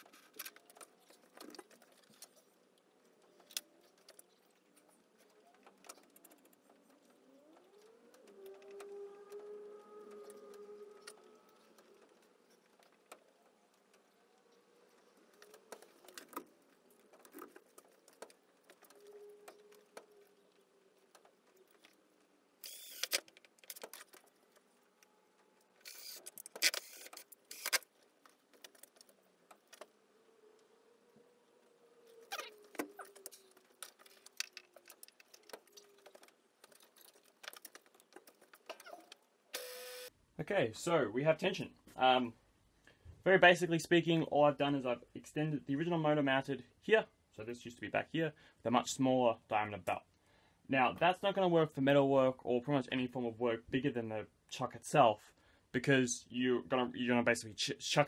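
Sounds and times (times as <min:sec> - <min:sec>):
clatter of tools and parts: 0:10.0 - 0:30.0, 0:32.6 - 0:39.3
cordless drill bursts: 0:22.6 - 0:23.2, 0:39.6 - 0:40.1.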